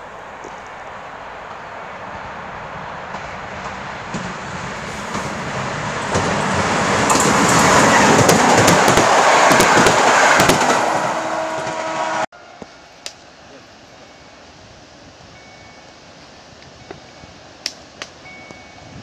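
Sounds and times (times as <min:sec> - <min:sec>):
train passing on rails: 0:00.0 - 0:19.0
sharp rail clicks: 0:06.0 - 0:12.0.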